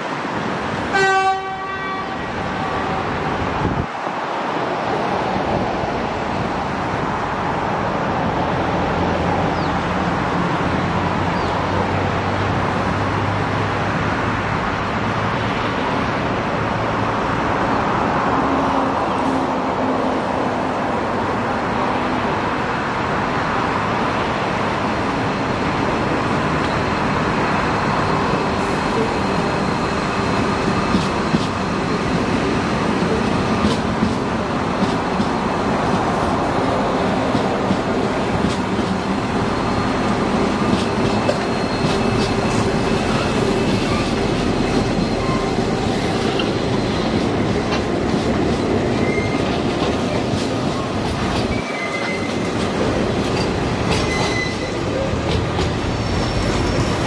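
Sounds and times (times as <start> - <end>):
freight locomotives rumbling: 0.0 - 57.0
high-pitched wheel squeal: 41.1 - 46.2, 48.9 - 49.5, 51.5 - 52.5, 54.0 - 55.1.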